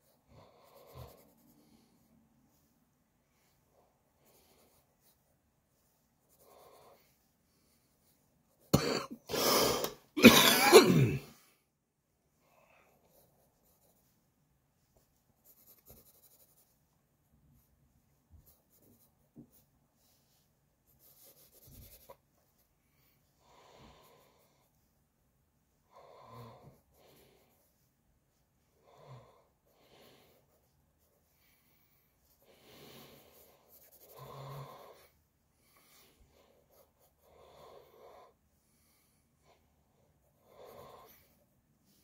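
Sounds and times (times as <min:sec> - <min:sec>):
pencil strokes on paper: 0:00.0 - 0:08.8, 0:12.7 - 0:42.0
breathing: 0:00.3 - 0:02.1, 0:22.8 - 0:24.7, 0:25.9 - 0:27.7, 0:28.8 - 0:30.6, 0:31.3 - 0:39.7
person coughing: 0:08.7 - 0:11.4.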